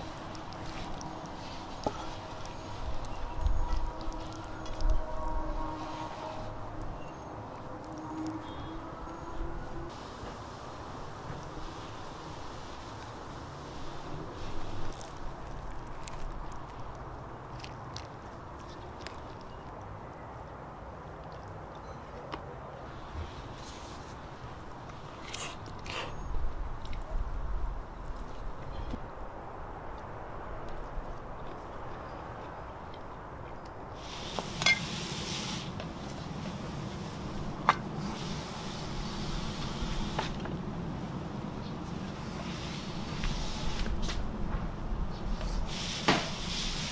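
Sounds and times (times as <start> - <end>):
steady background noise: 0.0 - 46.9
person chewing: 14.9 - 19.8.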